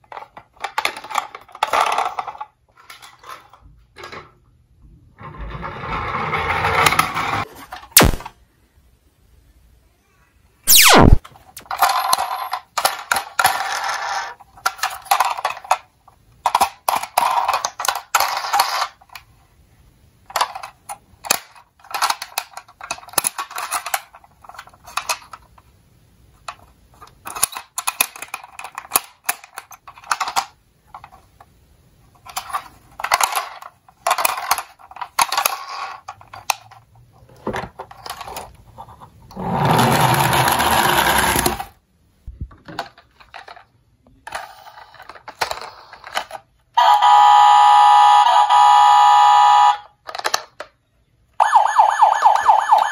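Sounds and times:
plastic toy clicks and rattles: 0:00.0 - 0:04.1, 0:11.5 - 0:19.3, 0:20.2 - 0:25.7, 0:26.4 - 0:31.4, 0:32.2 - 0:36.9, 0:42.6 - 0:46.5, 0:50.0 - 0:50.8
toy rolling on table: 0:05.2 - 0:07.5, 0:11.6 - 0:15.9, 0:16.5 - 0:19.3, 0:32.2 - 0:41.8, 0:43.1 - 0:46.5.

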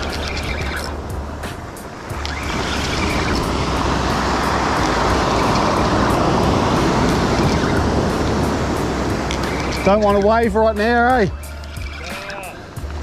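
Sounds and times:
wind rumble on microphone: 0:00.0 - 0:13.0
surf breaking on pebble beach: 0:01.0 - 0:10.9.

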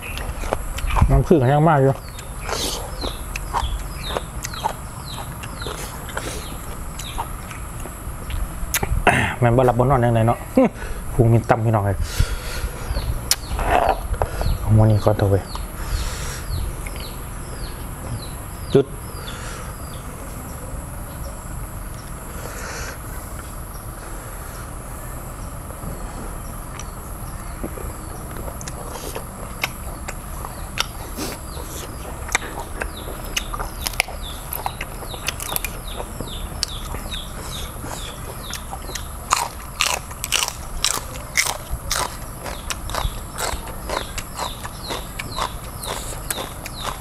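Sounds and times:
chewing and crunching snails: 0:00.0 - 0:10.0, 0:12.9 - 0:18.3, 0:26.4 - 0:47.0
high insect drone: 0:00.0 - 0:47.0.

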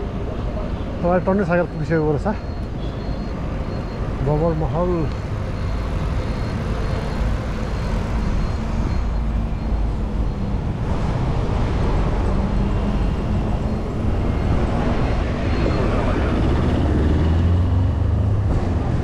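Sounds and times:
wind rush on microphone: 0:08.1 - 0:17.5.

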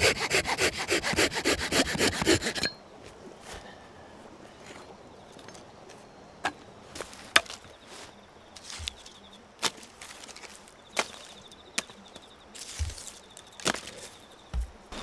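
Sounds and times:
faint insect trill: 0:04.4 - 0:15.0
firewood sticks knocking: 0:07.3 - 0:07.7.

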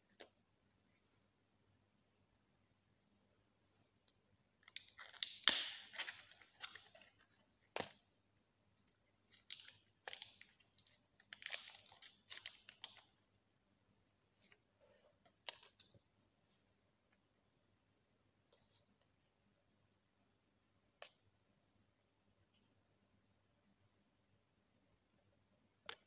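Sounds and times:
foil wrapper tearing and crinkling: 0:04.7 - 0:07.1, 0:09.3 - 0:13.0.

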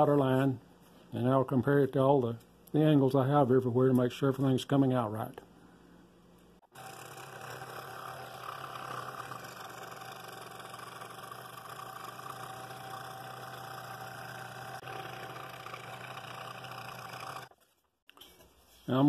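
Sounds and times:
scroll saw cutting wood: 0:06.7 - 0:17.6.

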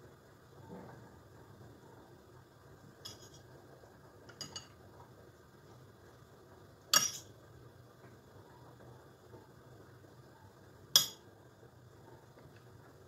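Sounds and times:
spoon clinking on ceramic plate: 0:03.1 - 0:03.4, 0:07.0 - 0:07.3, 0:11.0 - 0:11.2.

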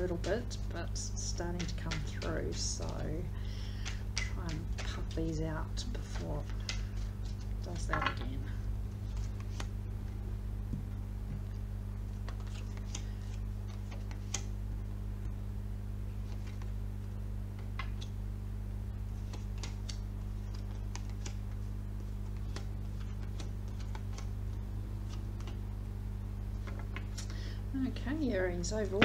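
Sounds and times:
low electrical hum: 0:00.0 - 0:29.0
cards clicking on a table: 0:01.6 - 0:03.1, 0:03.8 - 0:05.2.

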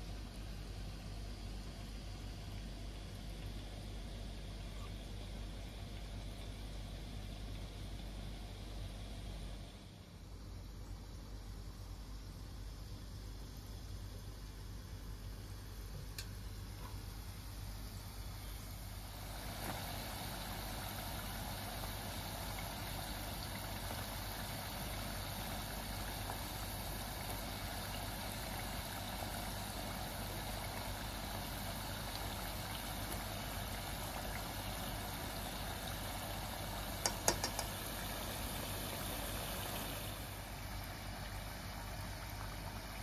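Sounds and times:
potatoes deep-frying in oil: 0:00.0 - 0:43.0
metal tongs clicking on pan: 0:37.0 - 0:37.7.

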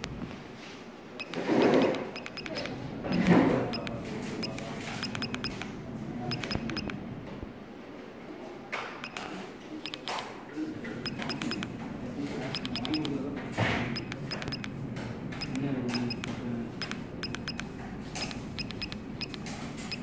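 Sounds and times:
keypad click-beeps: 0:01.2 - 0:05.7, 0:06.3 - 0:07.0, 0:09.0 - 0:10.2, 0:11.0 - 0:11.8, 0:12.5 - 0:13.2, 0:13.9 - 0:14.8, 0:15.4 - 0:20.0.

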